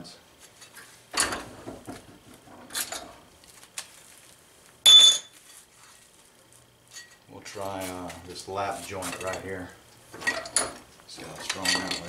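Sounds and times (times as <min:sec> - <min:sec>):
aluminum sheets clinking and rattling: 0:10.2 - 0:12.0.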